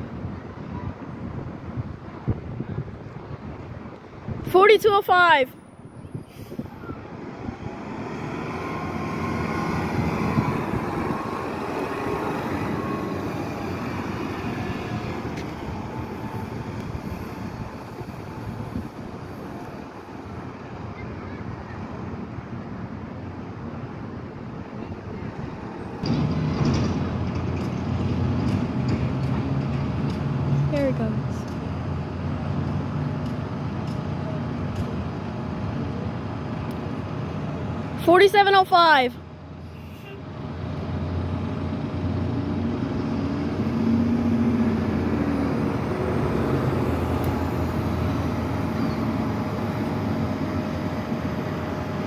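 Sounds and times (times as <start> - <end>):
bus driving past: 0.0 - 52.0
street traffic: 0.0 - 52.0
vehicle engine humming: 0.0 - 52.0.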